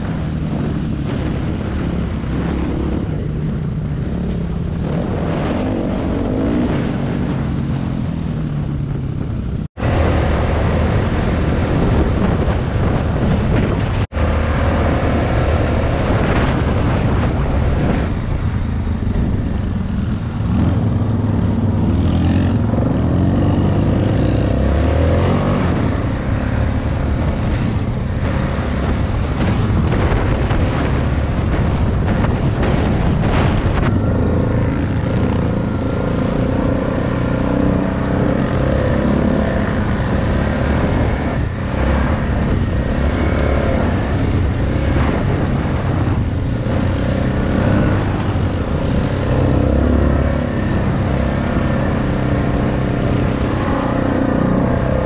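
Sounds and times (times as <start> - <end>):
dirt bike engine revving: 20.0 - 55.0.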